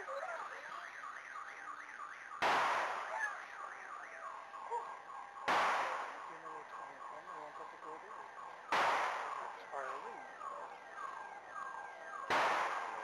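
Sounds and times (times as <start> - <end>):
cannon shots echoing: 2.3 - 3.7, 5.4 - 6.5, 8.7 - 9.6, 12.2 - 13.0.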